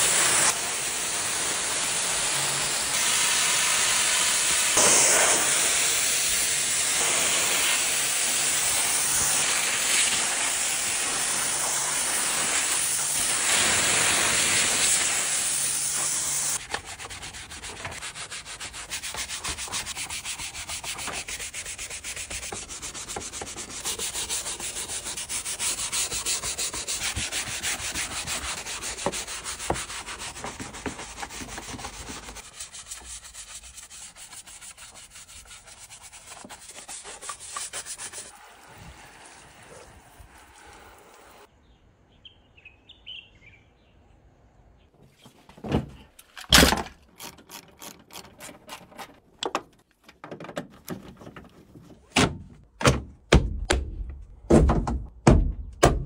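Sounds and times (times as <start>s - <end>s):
pressure washer spraying: 0.0s - 41.5s
scrub brush on plastic: 7.0s - 41.4s.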